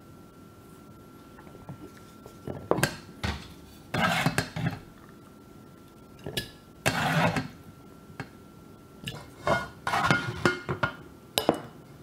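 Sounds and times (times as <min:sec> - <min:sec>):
metal saucepan clattering and scraping: 0:09.1 - 0:11.0.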